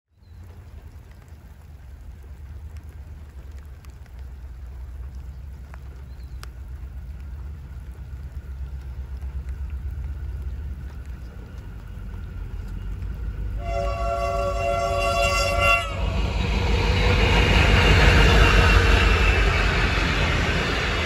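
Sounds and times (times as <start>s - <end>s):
faint raindrop ticks: 0.1s - 15.6s
light rain: 0.1s - 21.0s
distant locomotive rumble: 0.2s - 21.0s.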